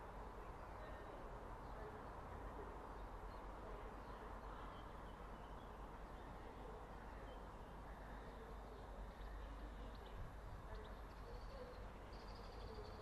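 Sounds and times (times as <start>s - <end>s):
faint bird chirps: 2.9s - 13.0s.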